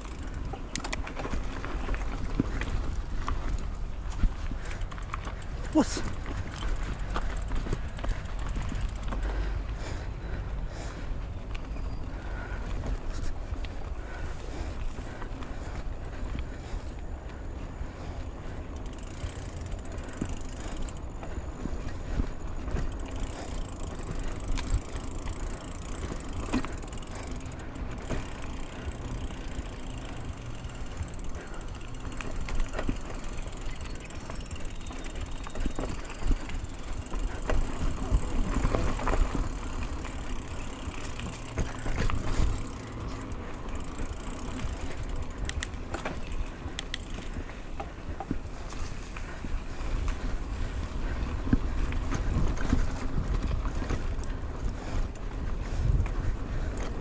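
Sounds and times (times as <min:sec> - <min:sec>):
bike chain and frame rattling: 0:00.0 - 0:57.0
bike tyres crunching on dirt: 0:00.0 - 0:57.0
wind rumbling on microphone: 0:44.5 - 0:57.0.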